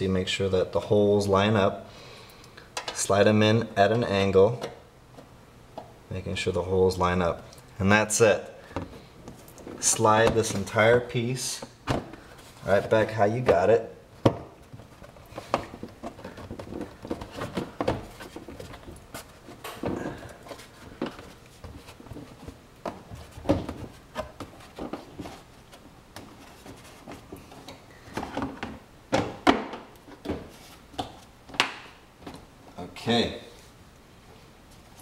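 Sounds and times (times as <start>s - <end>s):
plastic parts knocking and scraping: 8.7s - 32.8s.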